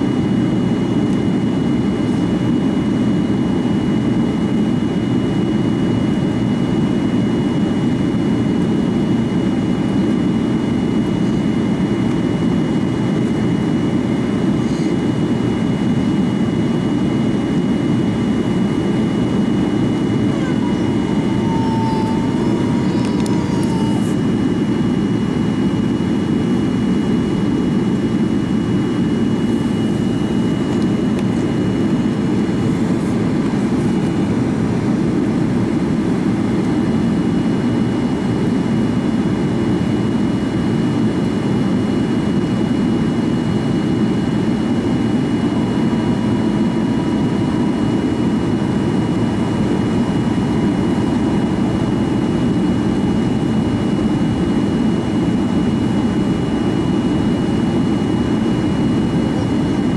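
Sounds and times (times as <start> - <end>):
airflow rush and jet engine hum: 0.0 - 59.9
thin high whine: 17.8 - 34.5.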